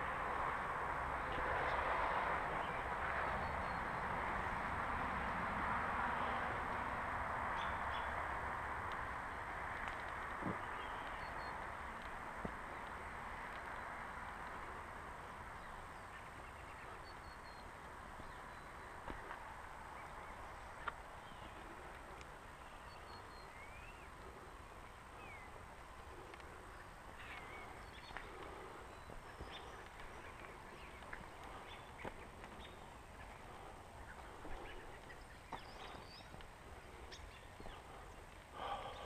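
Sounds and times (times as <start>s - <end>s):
bird chirps: 10.5s - 11.6s, 22.6s - 25.6s, 26.6s - 39.0s.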